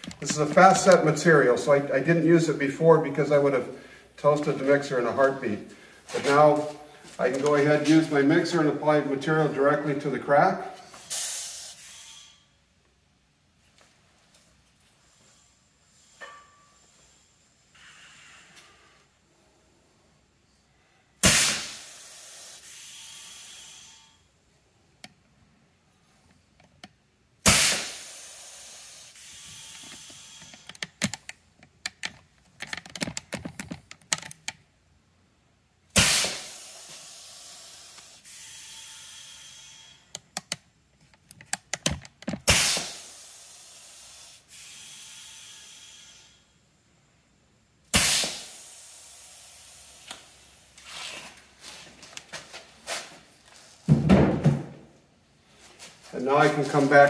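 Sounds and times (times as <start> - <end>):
air burst and hiss from dispensing gun: 10.9 - 12.5, 21.2 - 24.2, 27.4 - 30.8, 35.9 - 39.6, 42.4 - 46.4, 47.9 - 51.2.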